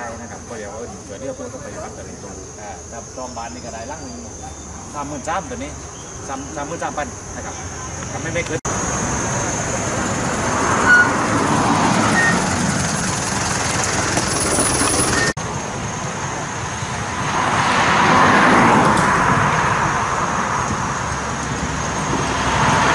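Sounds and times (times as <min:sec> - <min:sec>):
road traffic: 0:00.0 - 0:22.9
vehicle passing by: 0:08.3 - 0:15.3, 0:17.1 - 0:22.9.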